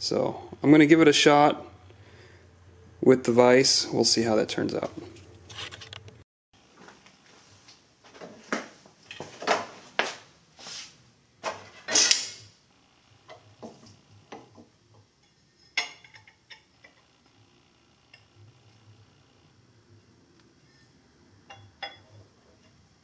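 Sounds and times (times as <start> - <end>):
metal parts clanking on vise: 11.6 - 12.4, 15.2 - 17.0.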